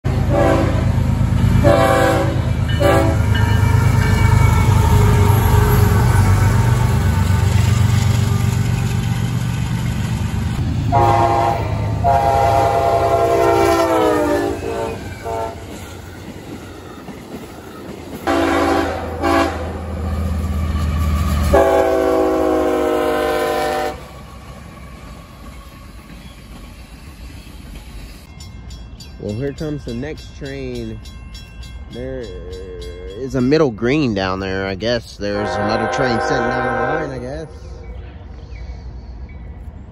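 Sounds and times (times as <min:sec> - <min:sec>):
freight locomotives rumbling past: 0:00.0 - 0:39.9
train air horn blasts: 0:00.1 - 0:01.0, 0:01.6 - 0:03.4, 0:10.9 - 0:15.8, 0:18.2 - 0:19.9, 0:21.4 - 0:24.1, 0:35.3 - 0:37.5.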